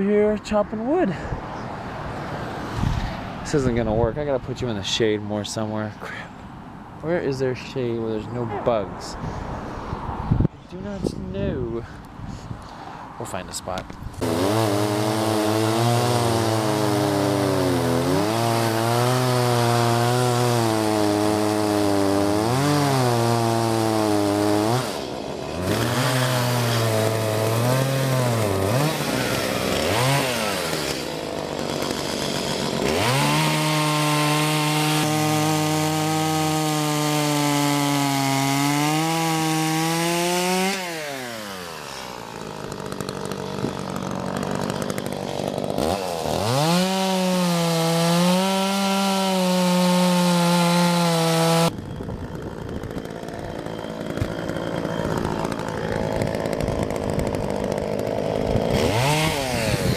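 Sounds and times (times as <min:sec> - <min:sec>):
chainsaw cutting logs: 0:13.7 - 0:59.9.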